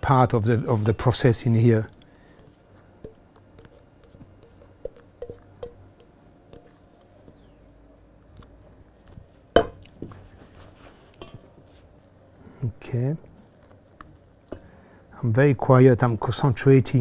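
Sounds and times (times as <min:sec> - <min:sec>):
steel bowl knock: 0:04.4 - 0:05.8, 0:09.6 - 0:09.8.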